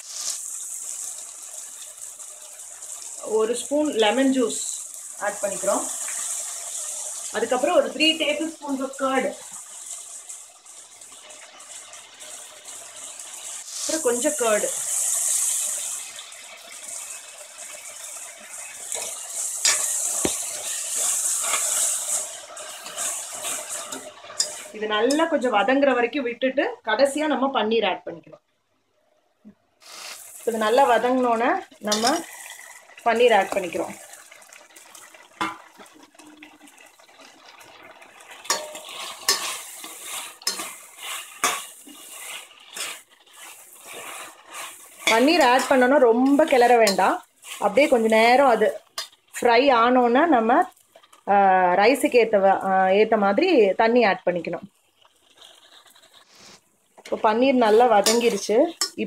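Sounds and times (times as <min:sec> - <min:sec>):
spices sizzling in oil: 0:00.0 - 0:27.5, 0:29.8 - 0:59.0
metal ladle scraping a pot: 0:18.9 - 0:25.3, 0:38.4 - 0:48.1, 0:57.6 - 0:59.0.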